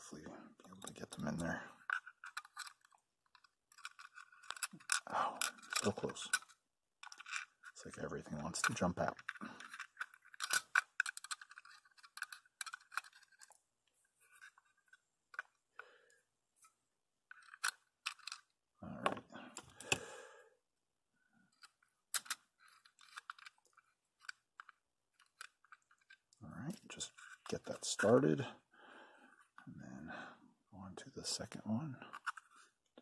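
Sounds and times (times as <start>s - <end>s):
tweezers and screws clicking on plastic: 0.6s - 7.8s, 8.6s - 13.6s, 21.5s - 27.6s.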